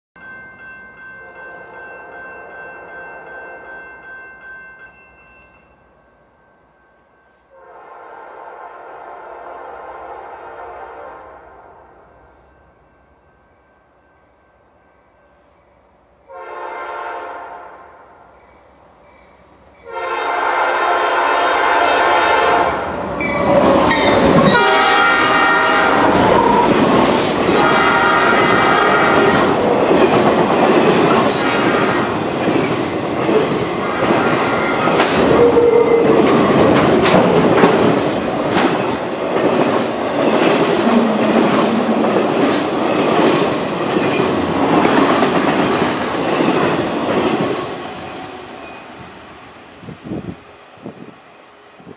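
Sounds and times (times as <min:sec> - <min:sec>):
locomotive air horn: 0:07.5 - 0:11.8, 0:16.3 - 0:17.9, 0:19.9 - 0:22.9, 0:24.4 - 0:26.8, 0:27.4 - 0:29.6, 0:35.3 - 0:36.2
locomotives passing: 0:22.7 - 0:50.9.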